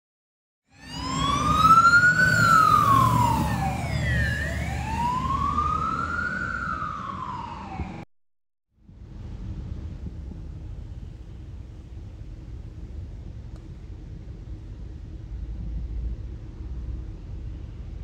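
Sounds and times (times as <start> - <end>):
fire engine siren wailing: 0.7 - 8.1
truck engine rumble: 0.8 - 8.0, 8.8 - 18.0.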